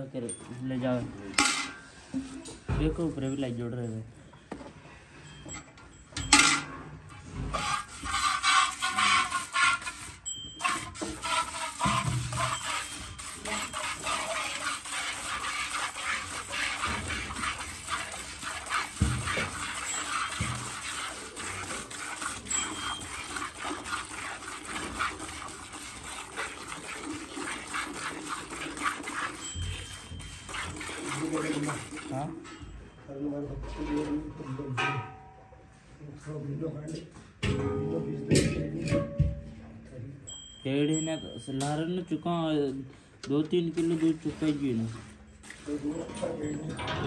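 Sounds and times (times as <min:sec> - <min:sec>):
milk squirting into steel bucket: 0:07.2 - 0:32.5, 0:43.7 - 0:47.0.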